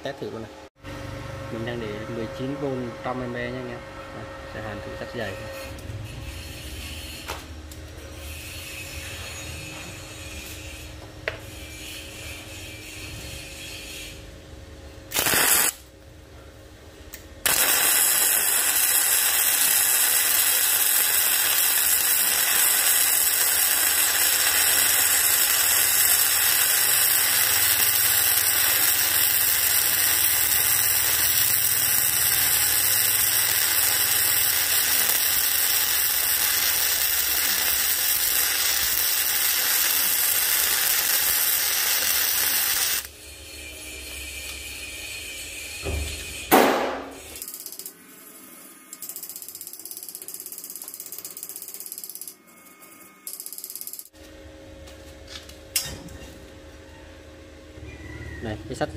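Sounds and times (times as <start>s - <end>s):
welding arc crackling hiss: 15.1s - 15.9s, 17.4s - 43.1s.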